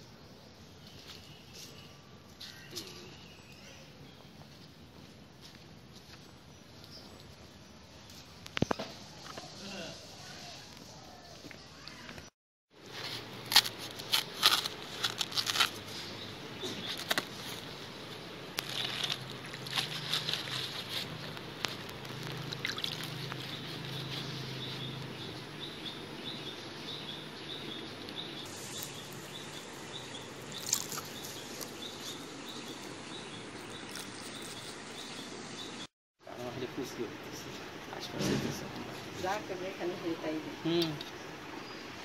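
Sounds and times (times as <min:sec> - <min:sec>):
leaf rustling while washed: 0:12.8 - 0:25.2, 0:28.0 - 0:35.8
knife cutting banana leaf: 0:13.4 - 0:16.1.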